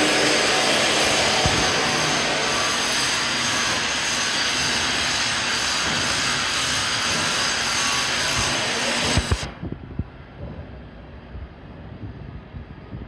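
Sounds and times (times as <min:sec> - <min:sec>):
agitator drive whirring with whine: 0:00.0 - 0:10.3.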